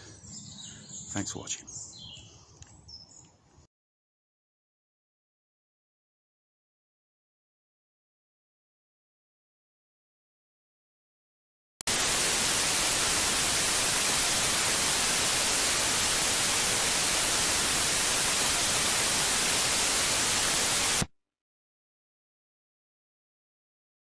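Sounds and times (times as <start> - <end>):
white-noise static hiss: 11.9 - 21.1.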